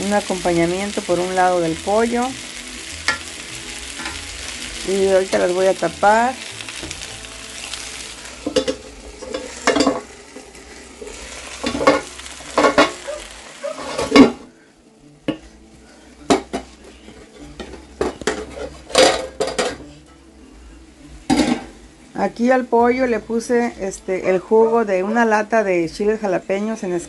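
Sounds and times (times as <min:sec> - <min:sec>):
food sizzling in a frying pan: 0:00.0 - 0:14.6, 0:15.4 - 0:27.0
metal spoon stirring in pan: 0:07.7 - 0:14.3
metal lid clanking onto pan: 0:08.4 - 0:10.1.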